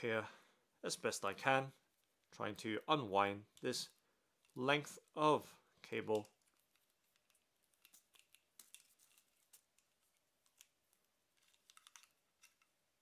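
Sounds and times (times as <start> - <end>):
cable clicks and rustles: 5.9 - 12.8.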